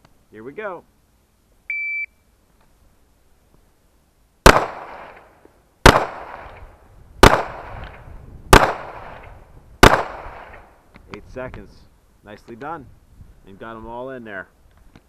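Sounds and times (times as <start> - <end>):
pistol shots: 4.4 - 6.6, 7.2 - 10.7.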